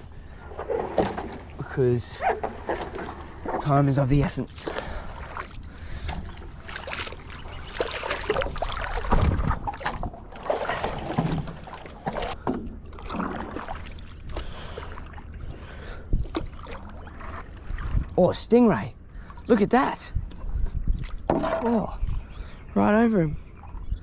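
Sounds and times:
paddle strokes splashing: 0:00.4 - 0:18.2.

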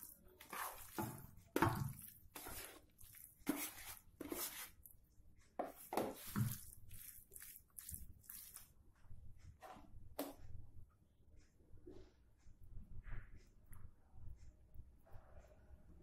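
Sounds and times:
raw meat squelching and slapping: 0:00.0 - 0:04.9, 0:06.0 - 0:08.7.

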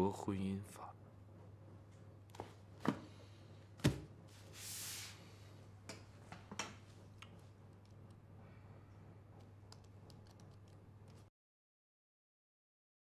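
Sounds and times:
hardcover book shutting thump: 0:03.8 - 0:04.1
book sliding across desk: 0:04.3 - 0:05.4.

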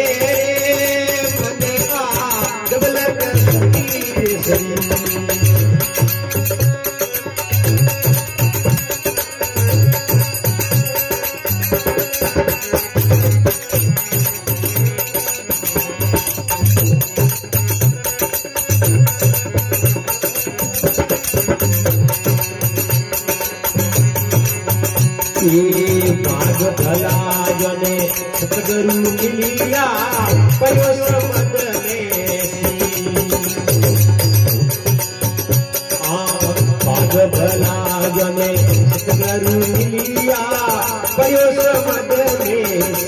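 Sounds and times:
dholak drum strokes: 0:00.0 - 0:43.0
harmonium held tones: 0:00.0 - 0:43.0
jingling hand cymbals: 0:00.0 - 0:43.0.

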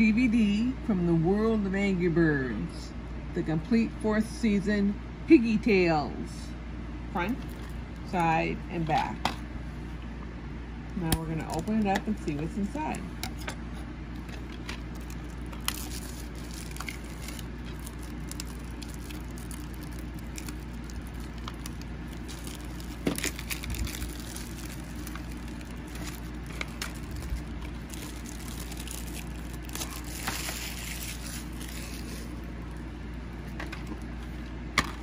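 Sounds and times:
plastic shrink-wrap crinkling: 0:11.3 - 0:12.0, 0:14.1 - 0:34.2.

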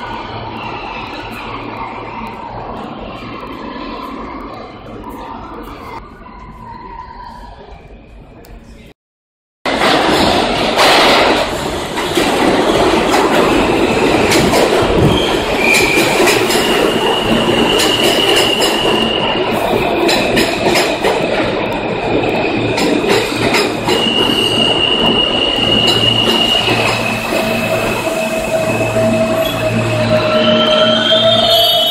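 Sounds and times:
subway train wheels rumbling: 0:00.0 - 0:08.9, 0:09.7 - 0:31.9
rail-joint clicks: 0:09.7 - 0:19.0, 0:20.0 - 0:21.8, 0:22.7 - 0:24.4, 0:25.0 - 0:27.8
wheel squeal: 0:23.8 - 0:31.9.

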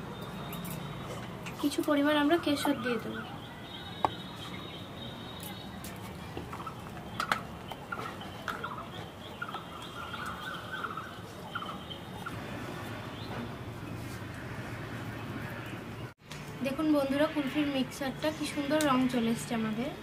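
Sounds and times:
bird-like calls: 0:02.1 - 0:14.0.

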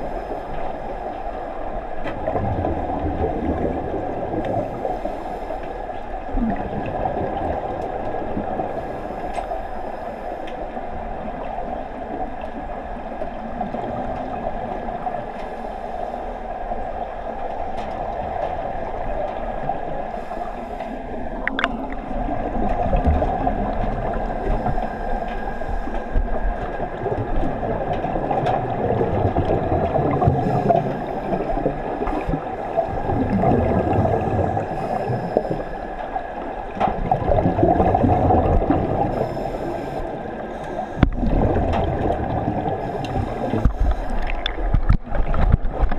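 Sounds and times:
underwater rush of water: 0:00.0 - 0:45.9.

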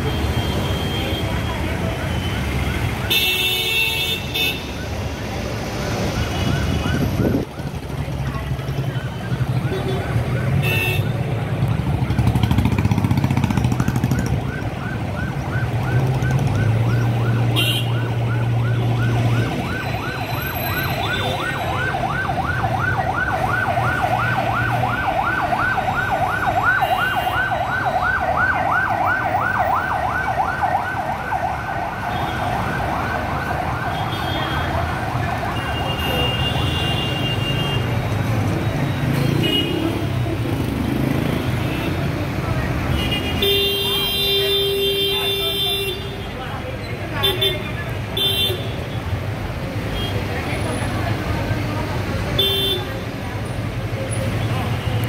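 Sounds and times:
street traffic: 0:00.0 - 0:55.0
siren yelping: 0:13.4 - 0:35.8.

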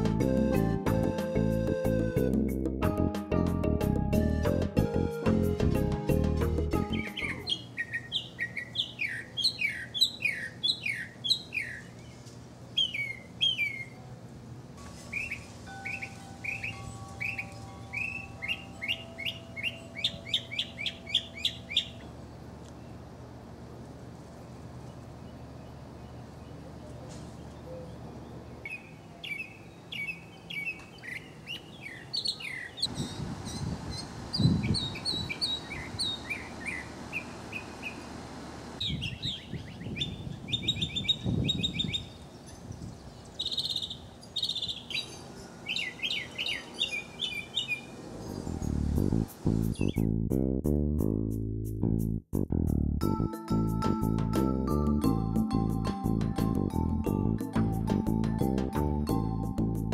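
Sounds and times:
mockingbird singing: 0:06.8 - 0:12.2, 0:12.8 - 0:14.0, 0:15.1 - 0:23.0, 0:25.2 - 0:38.1, 0:38.8 - 0:48.8.

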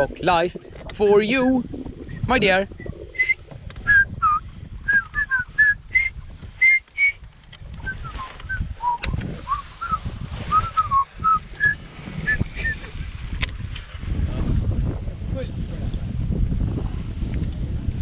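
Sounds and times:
wind rumble on microphone: 0:00.0 - 0:18.0
person whistling a tune: 0:03.2 - 0:07.2, 0:07.8 - 0:12.8.

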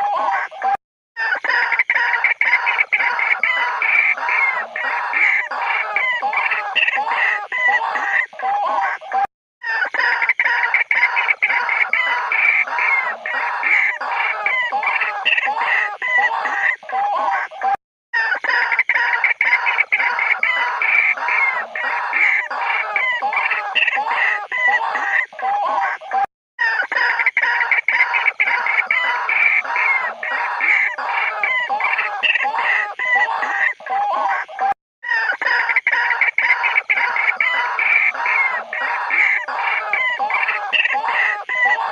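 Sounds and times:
waterhen harsh calls: 0:01.2 - 0:17.4, 0:18.2 - 0:25.9, 0:26.6 - 0:41.9
waterhen calls: 0:18.2 - 0:25.3, 0:26.6 - 0:33.8.

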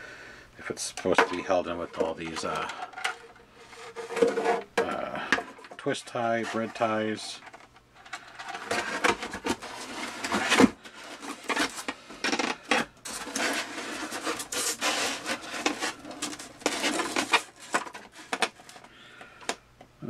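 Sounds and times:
foam rubbing and scraping: 0:03.5 - 0:04.6, 0:06.2 - 0:07.3, 0:08.6 - 0:12.0, 0:12.7 - 0:18.8.

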